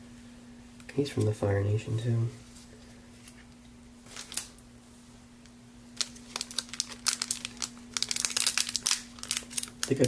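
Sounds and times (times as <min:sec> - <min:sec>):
foil wrapper crinkling: 0:04.1 - 0:04.5, 0:06.0 - 0:10.0.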